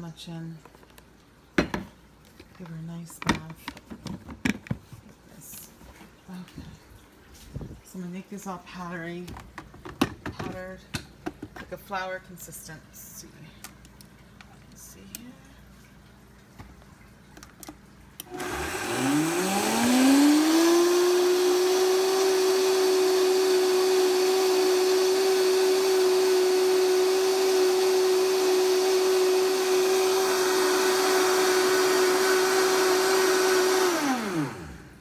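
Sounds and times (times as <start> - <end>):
blender grinding oats: 18.2 - 35.0.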